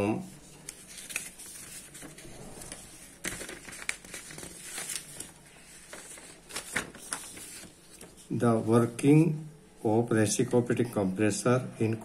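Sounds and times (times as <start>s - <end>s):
paper sheets rustling: 0.3s - 8.9s.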